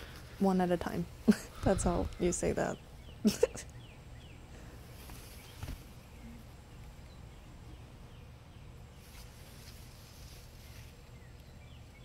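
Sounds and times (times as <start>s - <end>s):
leaves rustling: 4.6s - 12.0s.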